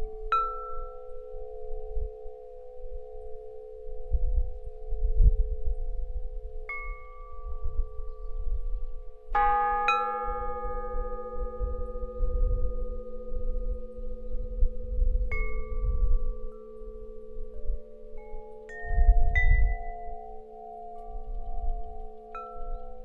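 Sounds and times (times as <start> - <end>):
metal chimes ringing: 9.0 - 23.0.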